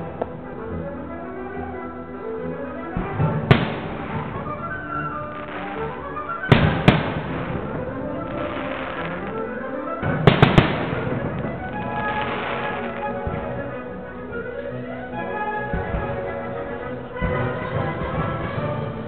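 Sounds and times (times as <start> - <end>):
music playing: 0.0 - 19.0
firework shells bursting: 3.0 - 13.8.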